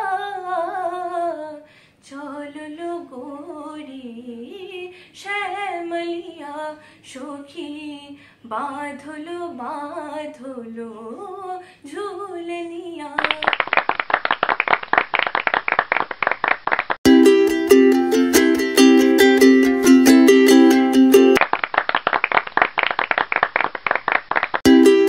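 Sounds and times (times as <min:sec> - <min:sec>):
girl singing unaccompanied: 0:00.0 - 0:13.4
applause: 0:13.2 - 0:17.0, 0:21.4 - 0:24.6.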